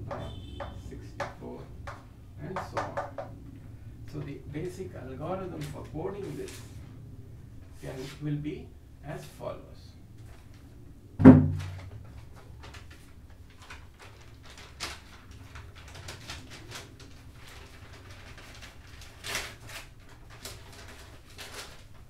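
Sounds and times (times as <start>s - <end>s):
sharp loud knock: 11.2s - 11.8s
rustling: 11.5s - 22.0s.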